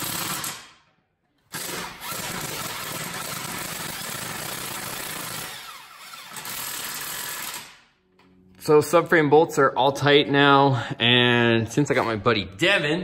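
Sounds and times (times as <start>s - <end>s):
impact wrench hammering: 0.0s - 0.9s, 1.5s - 7.8s.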